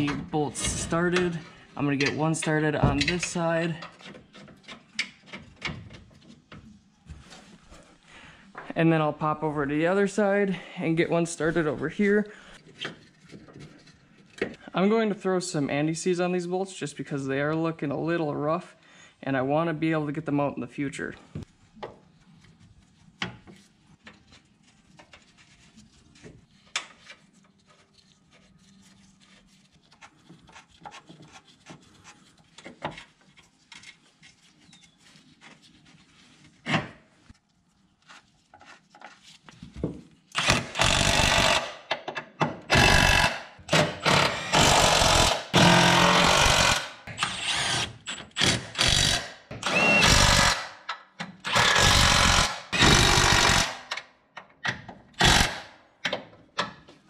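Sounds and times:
power tool bursts: 40.4s - 41.8s, 42.7s - 50.7s, 51.5s - 53.9s, 55.2s - 55.7s.

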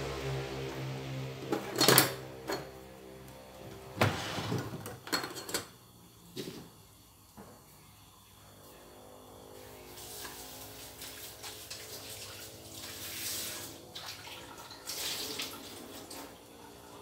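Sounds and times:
kitchen things knocking and clattering: 1.4s - 2.9s, 3.8s - 5.8s.

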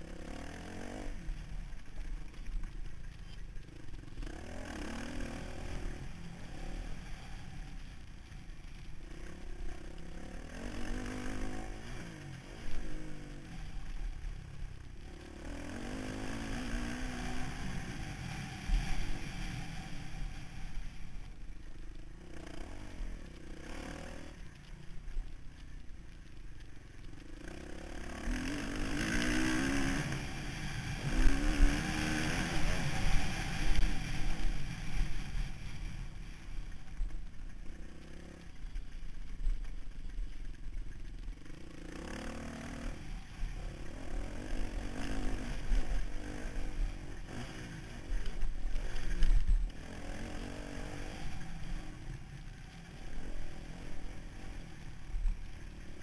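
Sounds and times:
motocross engine revving: 4.1s - 7.6s, 8.9s - 14.2s, 14.9s - 20.4s, 27.4s - 35.6s, 41.4s - 56.0s.

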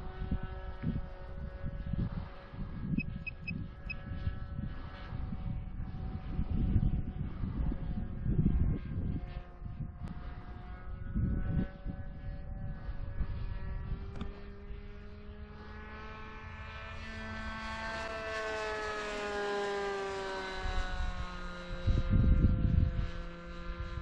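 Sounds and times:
wind rumbling on microphone: 0.0s - 15.6s, 20.4s - 24.0s
model plane engine droning: 0.0s - 24.0s.

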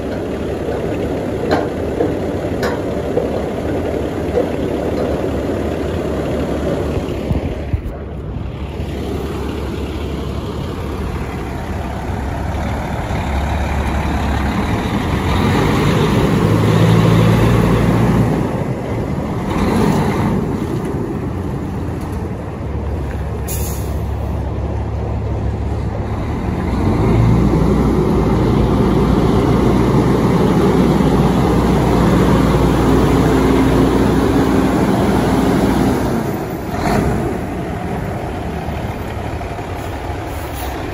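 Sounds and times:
diesel truck engine idling: 0.0s - 40.9s
short air hiss: 23.5s - 24.0s.

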